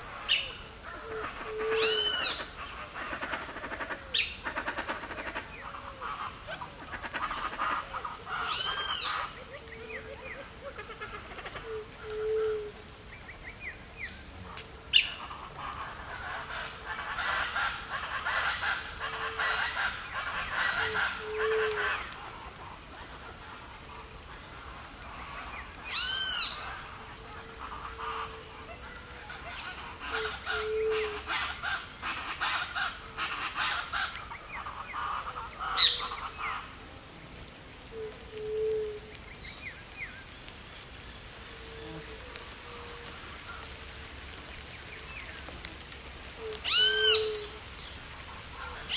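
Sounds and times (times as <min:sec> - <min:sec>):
loud arching bird calls: 0:00.0 - 0:12.7, 0:14.9 - 0:23.2, 0:23.9 - 0:36.8, 0:46.2 - 0:48.9.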